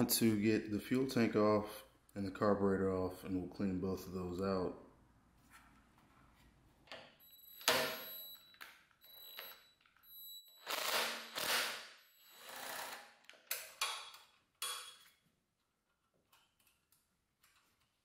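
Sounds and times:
cordless drill running: 10.6s - 13.2s.

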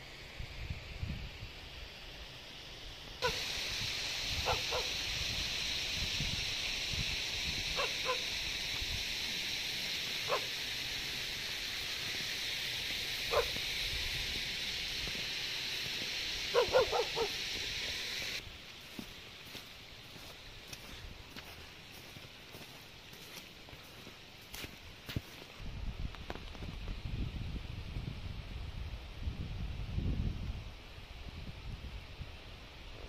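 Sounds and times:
steady high hiss: 0.0s - 33.0s
dog barking: 3.2s - 3.4s, 4.4s - 4.9s, 7.8s - 8.2s, 10.3s - 10.5s, 13.3s - 13.5s, 16.5s - 17.4s.

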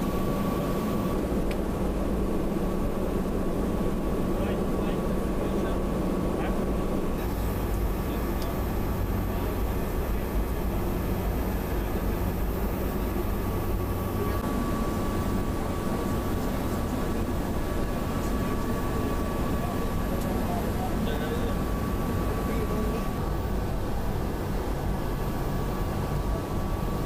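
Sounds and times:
aircraft cabin drone: 0.0s - 27.0s
faint steady whine: 0.0s - 27.0s.

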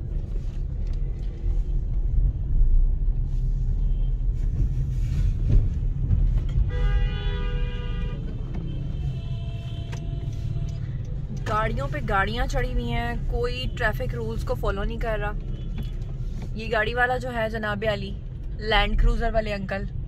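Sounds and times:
car engine and road rumble: 0.0s - 20.0s
vehicle horn: 6.6s - 10.9s.

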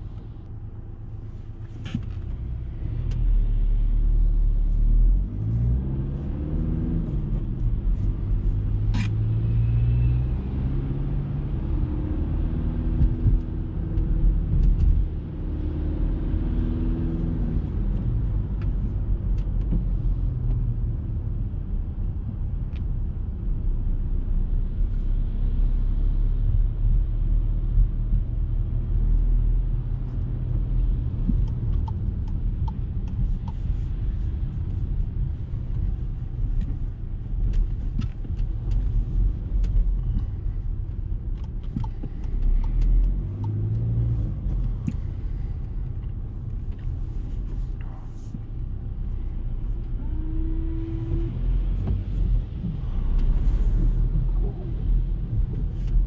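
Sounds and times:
engine and tyre rumble on wet road: 0.0s - 56.0s
faint ticks: 41.3s - 45.1s.

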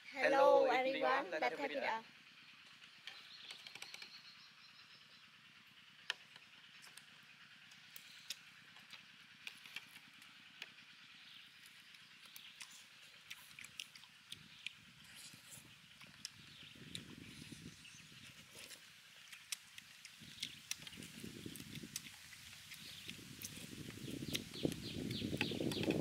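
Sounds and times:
faint outdoor hiss: 0.0s - 26.0s
faint chewing: 11.6s - 26.0s.

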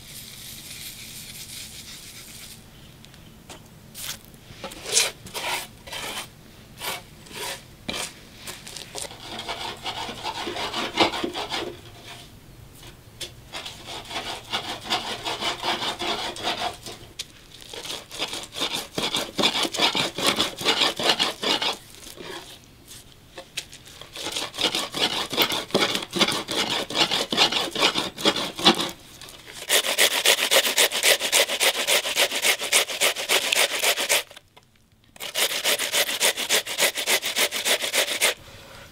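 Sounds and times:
hands rubbing greens in bowl: 0.0s - 2.6s
onion grated on metal grater: 4.6s - 11.8s, 13.5s - 17.0s, 17.6s - 22.6s, 23.9s - 34.4s, 35.2s - 38.4s.

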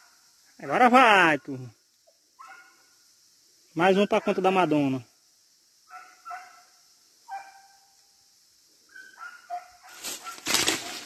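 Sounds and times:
hunting dog barking faintly: 2.4s - 2.9s, 4.1s - 4.7s, 5.9s - 8.0s
footsteps rustling through leaves: 9.8s - 11.0s.

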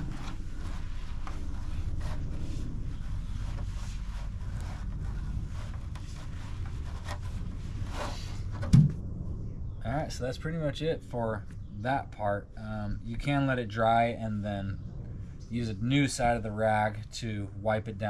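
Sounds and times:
cloth rag scrubbing plastic: 0.0s - 8.4s
low background rumble: 0.0s - 18.0s
short thump: 8.5s - 9.0s.

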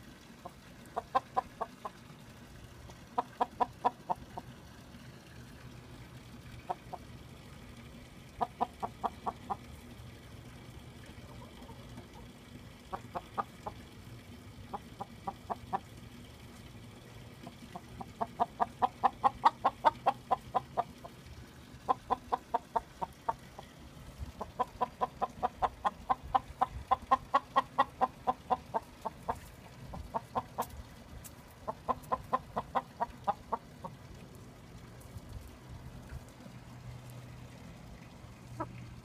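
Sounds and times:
chickens clucking: 0.0s - 2.1s, 2.9s - 4.5s, 8.4s - 9.9s, 11.1s - 13.9s, 14.5s - 16.0s, 17.4s - 21.2s, 21.8s - 30.8s, 31.5s - 34.0s, 38.4s - 39.0s.

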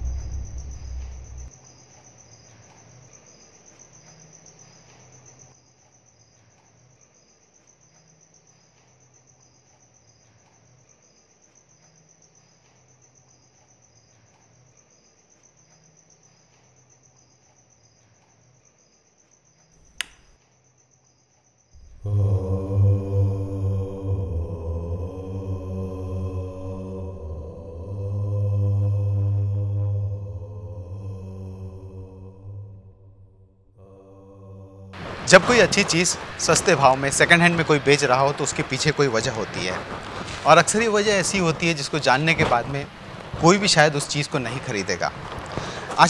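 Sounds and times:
boom rumble: 0.0s - 1.5s
faint low pulse: 0.0s - 1.5s
crickets chirping: 0.0s - 46.0s
light switch click: 19.8s - 20.4s.

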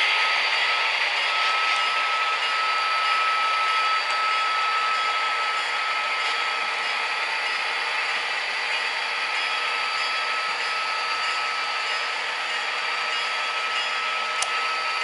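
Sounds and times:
thin steady whine: 0.0s - 15.0s.

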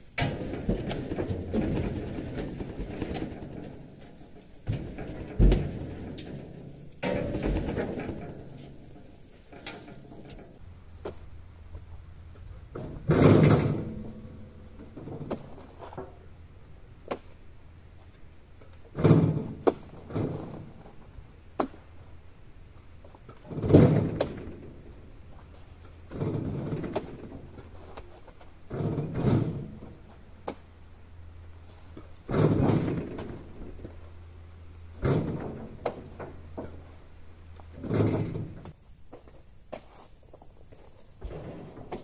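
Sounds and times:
steady low hum: 0.0s - 42.0s
heavy thuds of fruit bunches: 4.6s - 8.7s.

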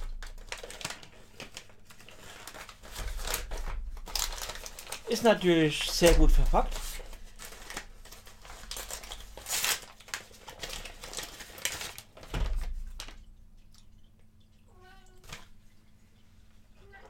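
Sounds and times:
packaging crinkling and tearing: 0.0s - 13.3s
cat meowing: 14.7s - 15.2s.

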